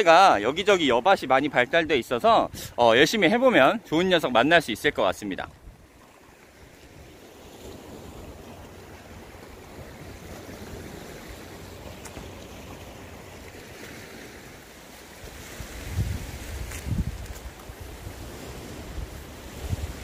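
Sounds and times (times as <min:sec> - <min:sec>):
sea surf washing ashore: 0:00.0 - 0:20.0
wind buffeting microphone: 0:15.2 - 0:20.0.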